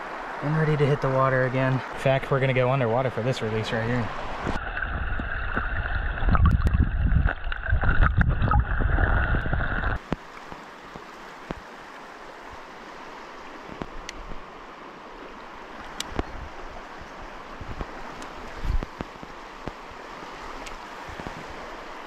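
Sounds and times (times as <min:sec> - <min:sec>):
flowing river water: 0:00.0 - 0:22.0
muffled underwater rumbling: 0:04.5 - 0:10.0
underwater knocks: 0:04.5 - 0:10.0.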